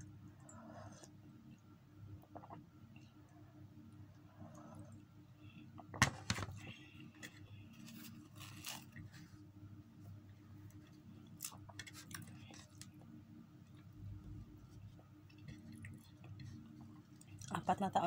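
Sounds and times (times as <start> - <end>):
steady low hum: 0.0 - 18.0
bread tearing: 7.8 - 9.2.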